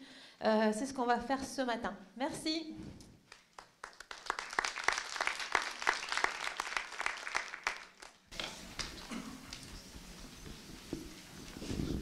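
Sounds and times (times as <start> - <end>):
audience applauding: 3.4 - 9.7.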